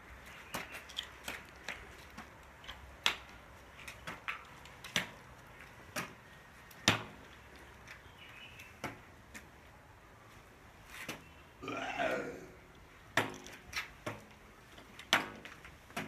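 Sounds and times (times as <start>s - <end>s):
footsteps on gritty pavement: 0.0s - 9.7s, 13.1s - 16.0s
metal crutch tapping on pavement: 13.1s - 16.0s.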